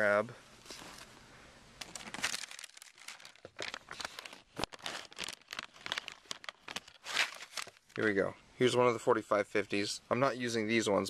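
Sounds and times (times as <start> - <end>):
crinkling and rustling with clicks: 1.8 - 8.1.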